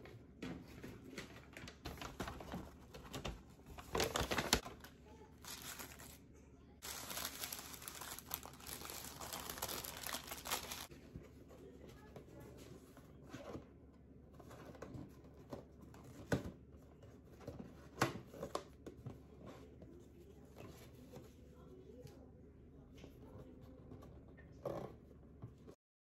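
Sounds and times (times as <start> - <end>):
paper wrapper crinkling: 1.1 - 6.2, 6.8 - 10.9.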